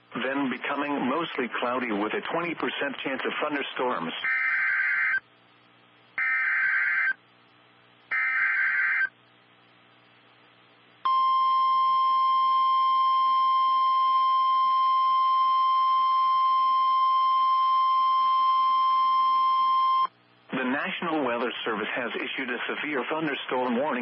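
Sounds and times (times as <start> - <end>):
steady alarm tone: 4.2 - 5.2, 6.2 - 7.2, 8.1 - 9.1.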